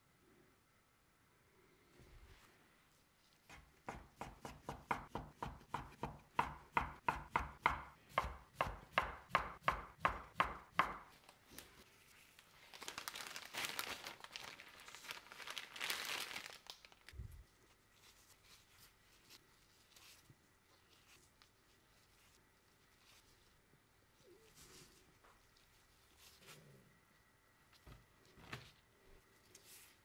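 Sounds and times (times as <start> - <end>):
soft rustling of noodles: 1.9 - 3.7, 11.1 - 30.0
knife chopping on cutting board: 3.5 - 11.1.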